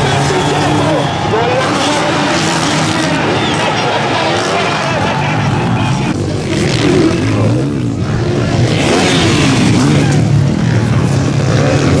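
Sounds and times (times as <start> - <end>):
motocross bikes revving: 0.0 - 12.0.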